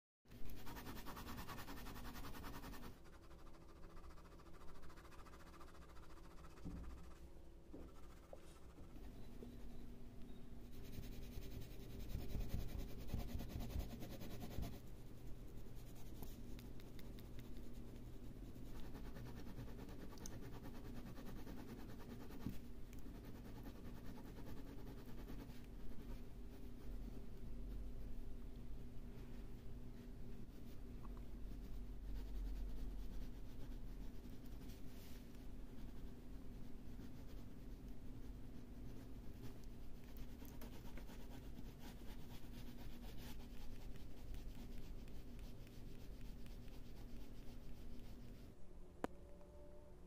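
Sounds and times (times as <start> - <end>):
ballpoint pen scratching on paper: 10.7 - 14.9, 15.8 - 26.9, 38.5 - 48.4.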